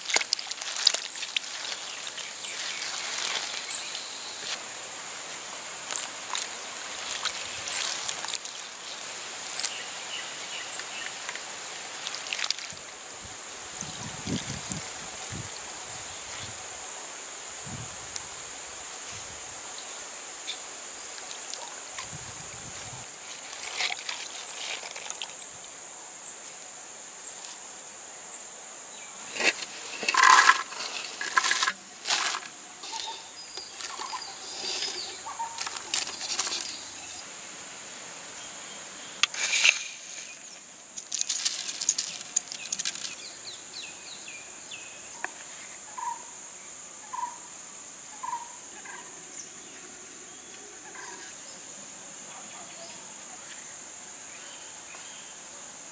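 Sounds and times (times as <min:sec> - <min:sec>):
rustling and clattering in pot: 0:00.0 - 0:04.0, 0:23.3 - 0:25.3, 0:29.2 - 0:37.0, 0:39.2 - 0:43.2
insect chirring: 0:00.0 - 0:55.9.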